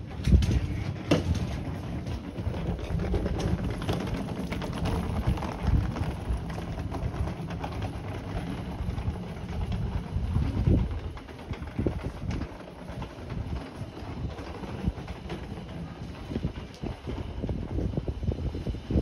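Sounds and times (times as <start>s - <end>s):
steady low rumble: 0.0s - 19.0s.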